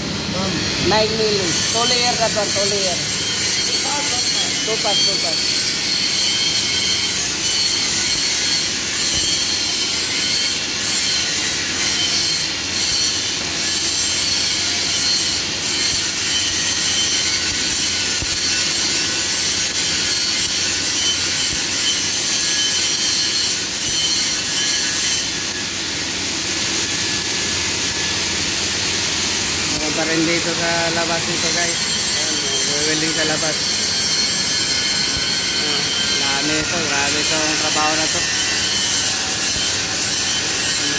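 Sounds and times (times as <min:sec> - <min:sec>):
arc welding crackling hiss: 0:00.2 - 0:40.9.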